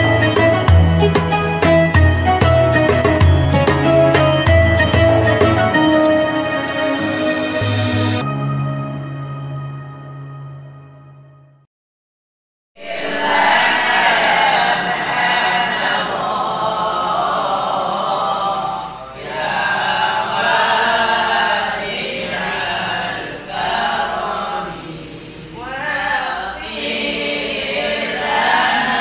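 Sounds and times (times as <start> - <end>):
boys chanting in unison: 12.8 - 29.0.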